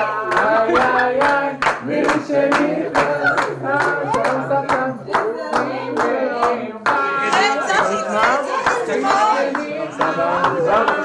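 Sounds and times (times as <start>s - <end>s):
group of people singing: 0.0s - 11.0s
hands clapping in time: 0.3s - 6.2s.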